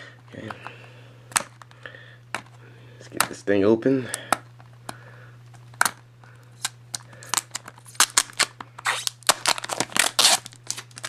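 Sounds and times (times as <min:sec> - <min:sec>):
shrink wrap crinkling and tearing: 0:06.6 - 0:11.0.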